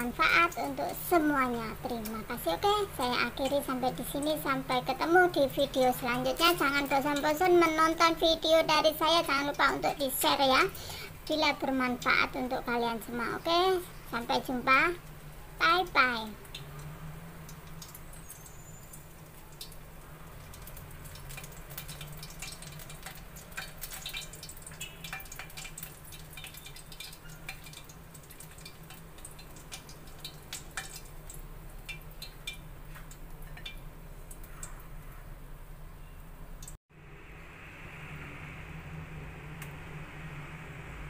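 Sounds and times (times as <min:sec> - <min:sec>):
hot oil crackling and popping: 0:00.0 - 0:36.8
steady low hum: 0:28.1 - 0:41.0.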